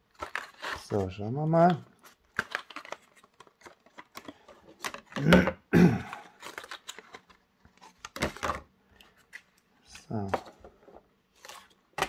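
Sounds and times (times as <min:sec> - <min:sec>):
plastic packaging crinkling: 0:00.0 - 0:05.2, 0:06.2 - 0:08.6.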